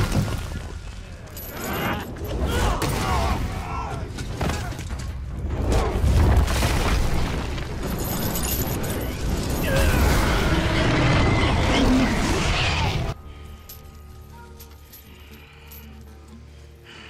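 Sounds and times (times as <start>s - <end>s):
music: 12.6s - 17.0s.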